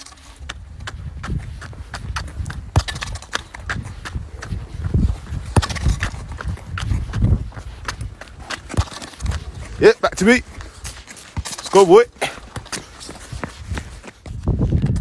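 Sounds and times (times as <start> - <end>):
shoes scuffing on tarmac: 0.0 - 15.0
football tapping against boots: 0.5 - 11.6.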